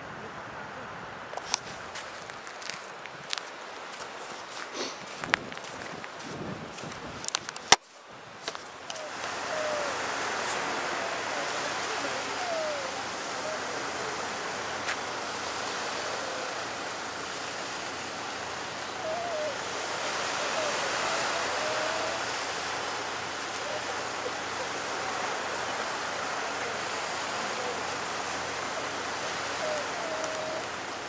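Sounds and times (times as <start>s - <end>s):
surf: 0.0s - 31.0s
wind: 0.0s - 31.0s
faint wavering calls: 8.9s - 31.0s.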